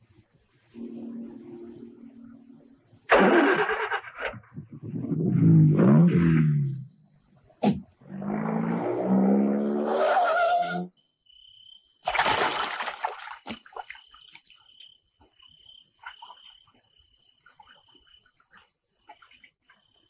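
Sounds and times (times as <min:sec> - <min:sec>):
faint high steady trill: 0:00.5 - 0:03.9
loud splash into pool: 0:12.0 - 0:13.6.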